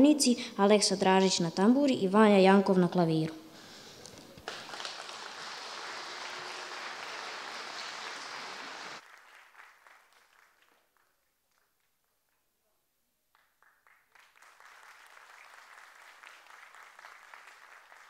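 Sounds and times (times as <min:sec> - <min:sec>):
scattered claps: 0:04.1 - 0:11.9, 0:13.3 - 0:18.0
audience applauding in a hall: 0:04.1 - 0:12.4, 0:13.3 - 0:18.0.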